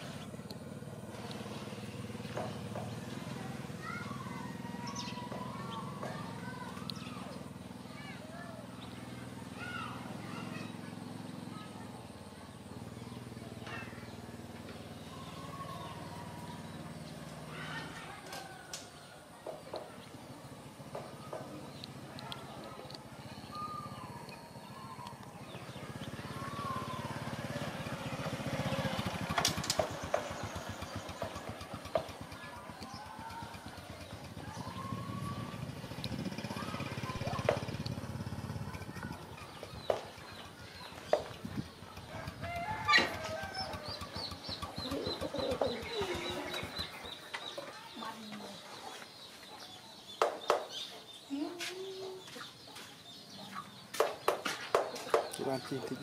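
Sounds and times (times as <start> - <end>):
small motorcycle engine running: 0.0 - 18.3, 20.2 - 48.1
chickens clucking: 39.4 - 56.0.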